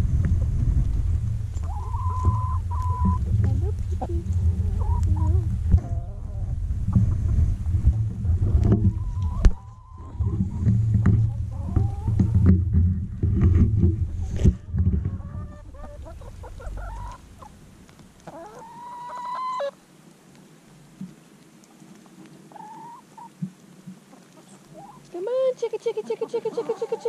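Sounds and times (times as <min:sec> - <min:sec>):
low rumble with handling knocks: 0:00.0 - 0:18.0
drawn-out rising hen call: 0:01.6 - 0:03.2, 0:15.2 - 0:17.6, 0:18.2 - 0:19.8
hens clucking and calling: 0:01.6 - 0:07.4, 0:08.6 - 0:12.8, 0:13.4 - 0:19.8, 0:22.0 - 0:27.0.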